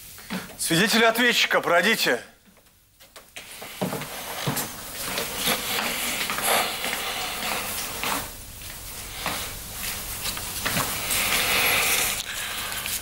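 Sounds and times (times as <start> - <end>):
hiss-like room noise: 0.0 - 13.0
footsteps on wooden floor: 2.4 - 12.2.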